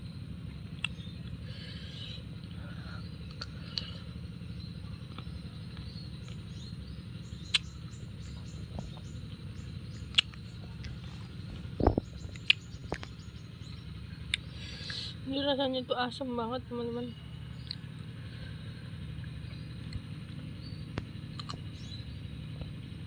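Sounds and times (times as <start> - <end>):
steady low hum: 0.0 - 23.0
person chewing fruit: 0.8 - 1.0, 7.5 - 7.7, 10.0 - 13.1, 14.3 - 15.0, 21.4 - 21.6
wet mouth clicks: 7.5 - 7.7, 10.1 - 11.0, 11.8 - 13.1, 21.4 - 21.6.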